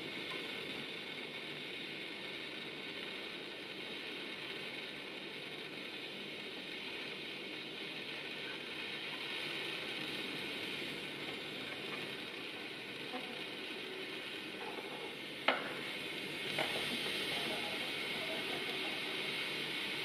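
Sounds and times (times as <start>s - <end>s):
solder sizzling and crackling: 0.0s - 20.0s.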